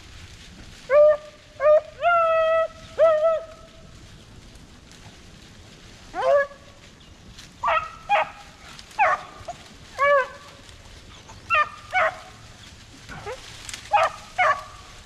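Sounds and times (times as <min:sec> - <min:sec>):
beagles baying: 0:00.8 - 0:04.1, 0:06.0 - 0:15.0.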